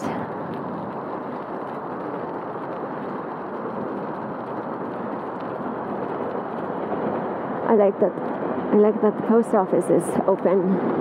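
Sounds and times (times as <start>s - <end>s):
bicycle tyres on pavement: 0.0s - 11.0s.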